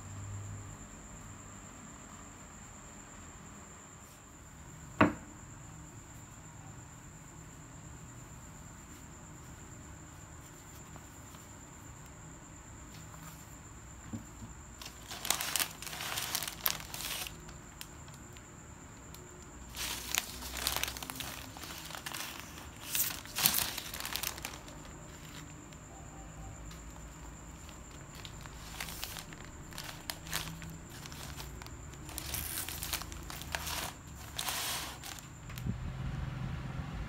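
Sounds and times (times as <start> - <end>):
wrapping paper crinkling: 14.8 - 18.4, 19.7 - 25.6, 27.6 - 35.4.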